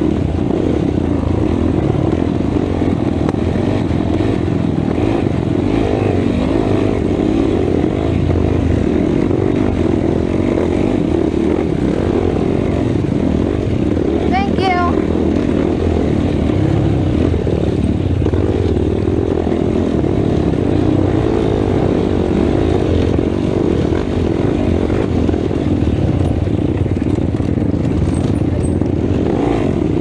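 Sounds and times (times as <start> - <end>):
quad bike engine revving: 0.0 - 30.0.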